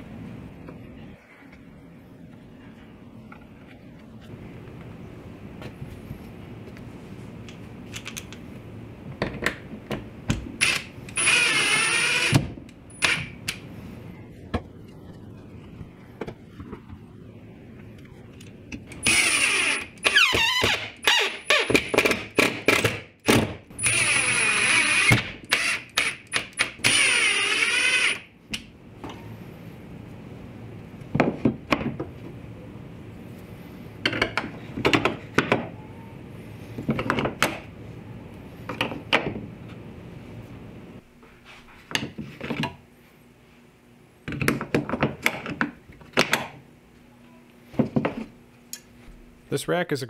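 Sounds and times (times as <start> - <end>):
cordless drill whining: 10.6 - 12.4, 19.0 - 21.2, 23.8 - 26.2, 26.8 - 28.2.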